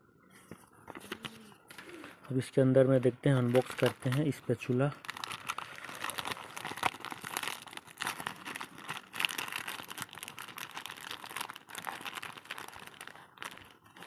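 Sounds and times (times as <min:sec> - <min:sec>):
plastic and paper crinkling: 0:00.4 - 0:14.0.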